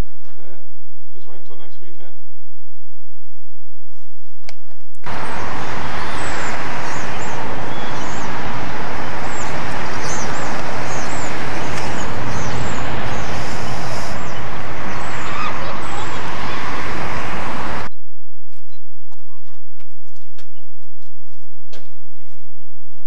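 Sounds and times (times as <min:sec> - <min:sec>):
outdoor hiss and rumble: 0:05.0 - 0:17.9
small birds chirping: 0:05.1 - 0:17.9.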